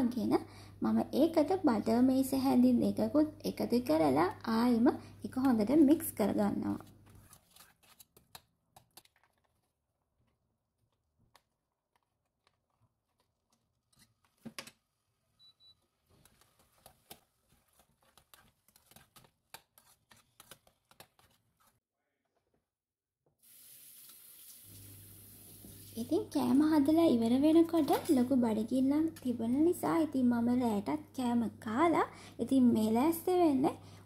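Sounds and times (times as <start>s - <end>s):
kitchen tap running: 23.4s - 26.2s.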